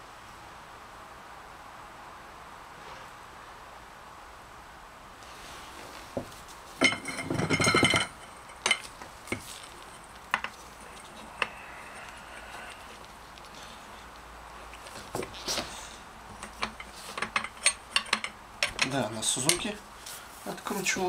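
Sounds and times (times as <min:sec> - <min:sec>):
metal tools clinking: 0:06.8 - 0:13.0, 0:16.3 - 0:19.8.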